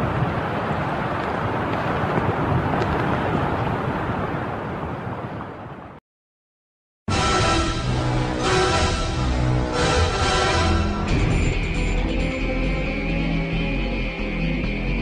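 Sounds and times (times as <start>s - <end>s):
rushing wind: 0.0s - 6.0s.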